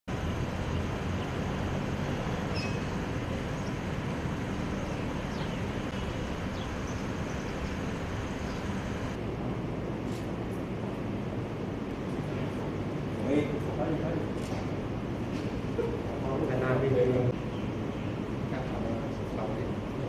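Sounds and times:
low outdoor background rumble: 0.1 - 20.0
faint high chirps: 2.5 - 3.0.

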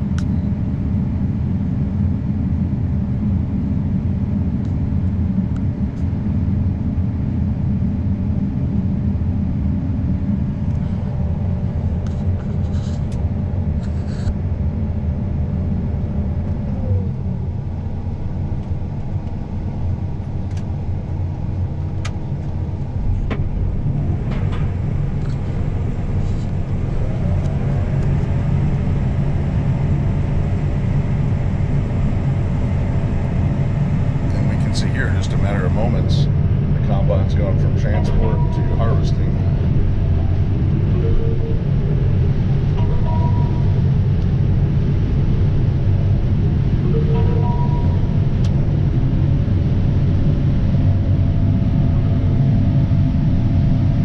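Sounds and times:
combine engine drone: 0.0 - 54.0
whining tones gliding: 22.7 - 52.3.

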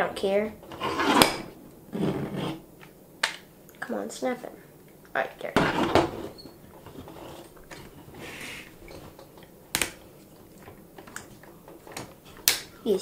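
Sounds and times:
plastic rubbing: 5.6 - 12.6
sharp plastic snap: 9.7 - 10.0, 12.0 - 12.7.

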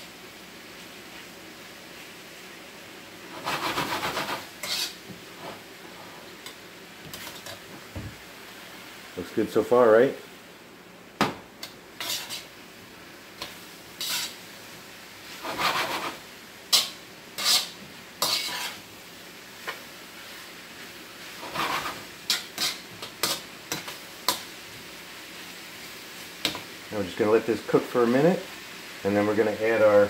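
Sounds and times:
food sizzling: 0.0 - 30.0
spatula scraping and clacking on wok: 3.3 - 7.6, 11.6 - 12.5, 13.4 - 14.4, 15.3 - 18.9, 21.3 - 24.5, 26.4 - 26.7.

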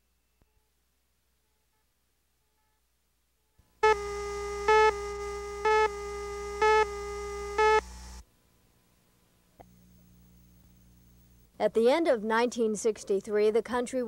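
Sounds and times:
countdown beeps: 3.8 - 7.8
steady tone: 3.8 - 8.2.

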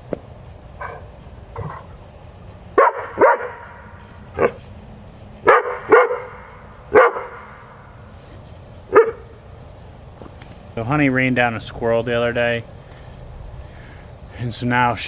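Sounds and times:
dog barking: 0.8 - 1.0, 2.8 - 3.8, 4.4 - 4.6, 5.4 - 7.4, 8.9 - 9.3.

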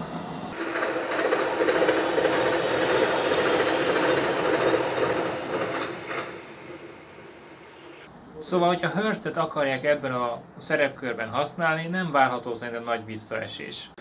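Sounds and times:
train passing by: 0.0 - 8.1.

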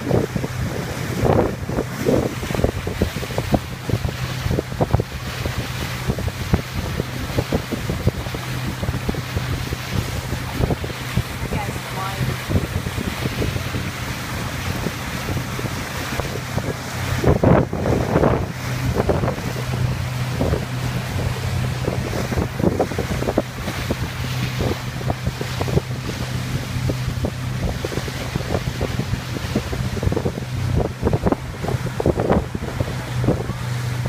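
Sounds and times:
boat motor humming: 0.0 - 34.0
water slapping against hull: 0.0 - 34.0
wind buffeting microphone: 0.0 - 34.0.

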